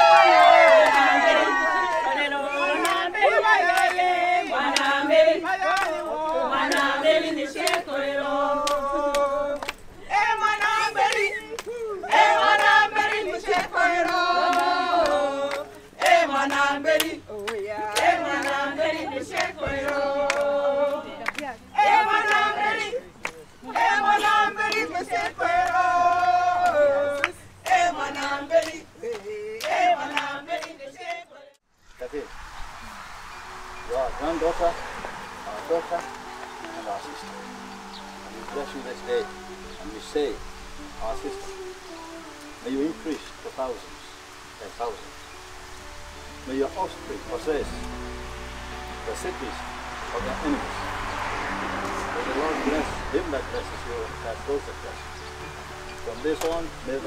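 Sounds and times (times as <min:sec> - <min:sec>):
group singing in chorus: 0:00.0 - 0:31.6, 0:33.8 - 0:44.1
handclaps: 0:02.7 - 0:05.0, 0:05.6 - 0:07.9, 0:08.6 - 0:09.8, 0:10.4 - 0:30.8, 0:56.3 - 0:56.7.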